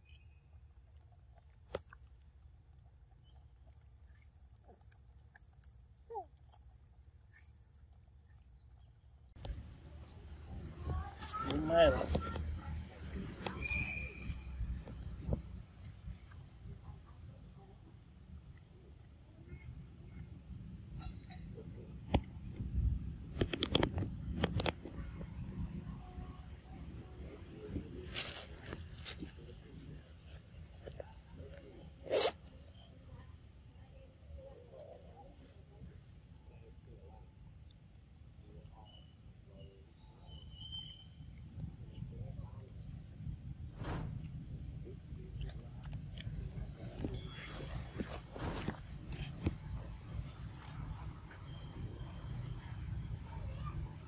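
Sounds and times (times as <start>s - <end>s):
monkey crunching mango: 1.2s - 8.0s
brief squeak: 13.4s - 14.6s
steady low rumble: 41.2s - 54.0s.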